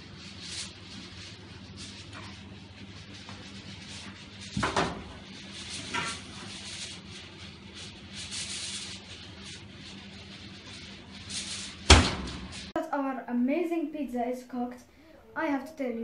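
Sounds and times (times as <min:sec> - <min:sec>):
soft rubbing: 0:00.0 - 0:12.8
steady low hum: 0:00.0 - 0:16.0
metal pans scraping and clunking: 0:01.8 - 0:07.1.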